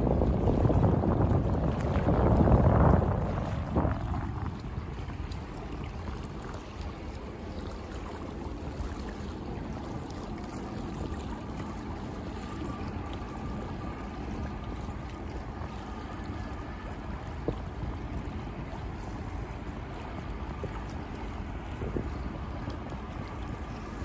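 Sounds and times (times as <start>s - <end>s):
ship low rumble: 0.0s - 24.0s
wind on microphone: 0.0s - 24.0s.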